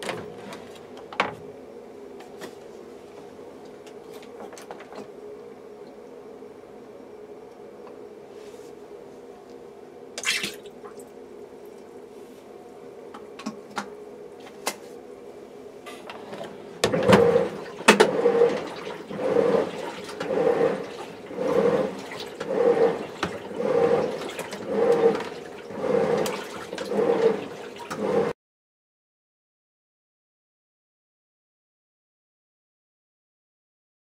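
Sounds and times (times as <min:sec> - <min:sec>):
washing machine churning water: 0:00.0 - 0:02.2, 0:09.9 - 0:11.8, 0:13.2 - 0:28.4.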